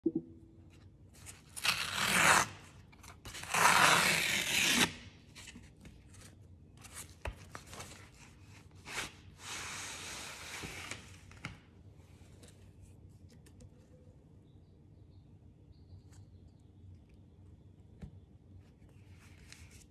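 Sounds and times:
envelope tearing: 0:01.3 - 0:05.0
paper rustling and scraping: 0:18.8 - 0:19.9.

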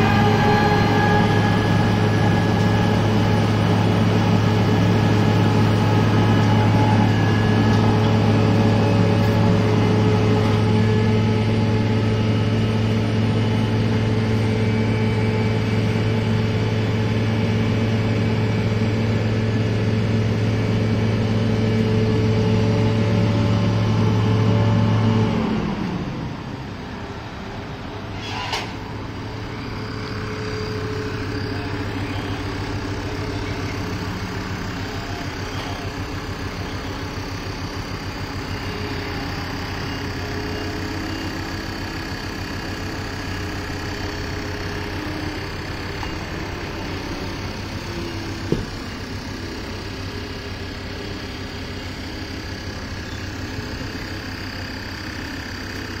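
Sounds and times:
heavy diesel machinery droning: 0:00.0 - 0:56.0
loud knock: 0:48.5 - 0:48.8.

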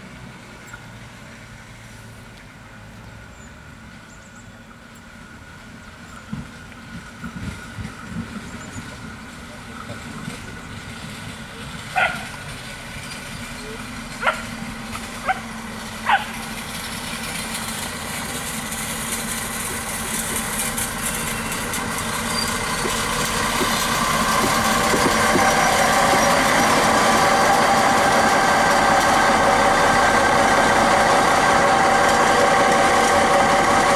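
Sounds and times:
diesel railcar engine drone: 0:00.0 - 0:33.9
dog yelping: 0:12.0 - 0:12.3, 0:14.2 - 0:14.5, 0:15.2 - 0:16.3.

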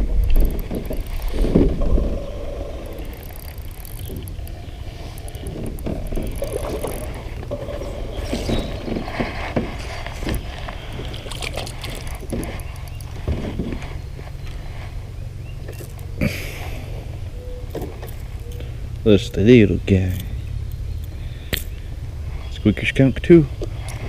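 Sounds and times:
low microphone rumble: 0:00.0 - 0:24.0
fishing reel cranking: 0:00.4 - 0:01.4, 0:02.1 - 0:07.4.

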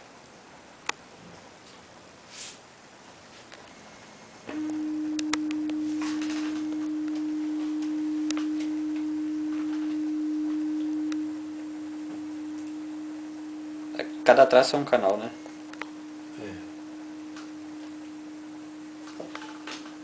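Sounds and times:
steady low pure tone: 0:03.6 - 0:20.0.

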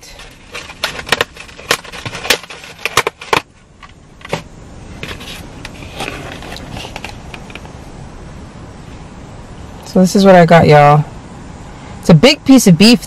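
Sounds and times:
foam container clicks and rustles: 0:00.0 - 0:07.6.

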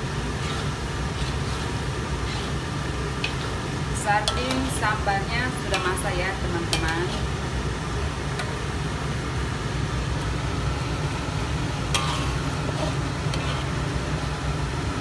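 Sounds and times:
metal spatula scraping wok: 0:00.3 - 0:07.4, 0:11.9 - 0:13.9.

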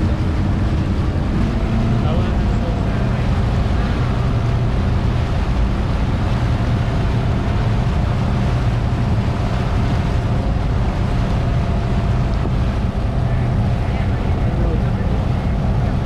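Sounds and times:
motorboat engine drone: 0:00.0 - 0:16.0
water churning in wake: 0:00.0 - 0:16.0
wind buffeting microphone: 0:00.0 - 0:16.0.

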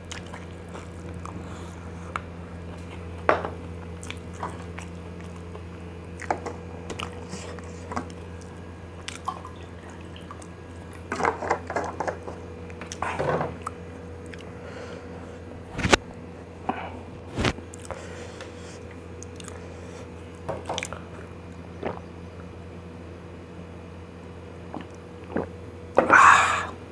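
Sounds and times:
chewing and wet smacking: 0:00.0 - 0:11.2, 0:12.7 - 0:14.5, 0:17.7 - 0:18.0, 0:19.2 - 0:19.7, 0:20.6 - 0:22.1, 0:24.7 - 0:25.5
steady low hum: 0:00.0 - 0:26.9.

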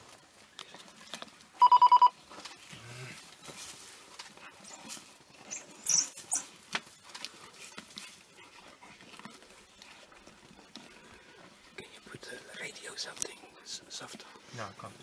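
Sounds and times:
short high squeaky calls: 0:05.4 - 0:06.5.

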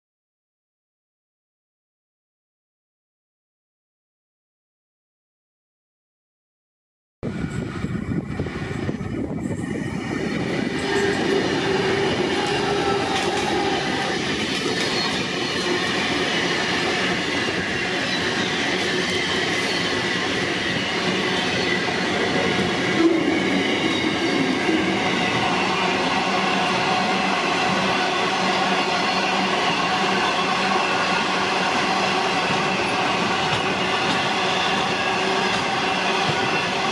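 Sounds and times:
diesel locomotive passing: 0:07.2 - 0:36.9
high wheel squeals: 0:08.7 - 0:36.9.

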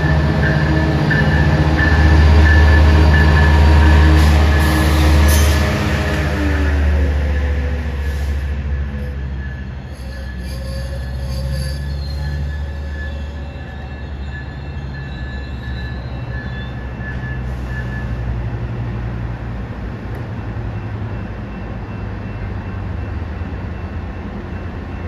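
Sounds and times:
diesel locomotive rumble: 0:00.0 - 0:25.0
high wheel squeals: 0:06.6 - 0:18.1.

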